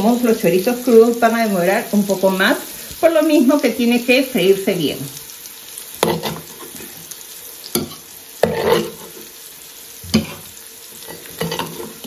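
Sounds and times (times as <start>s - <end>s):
meat sizzling in hot fat: 0.0s - 12.0s
metal spatula scraping a pan: 6.0s - 7.1s, 7.7s - 9.4s, 10.0s - 12.0s.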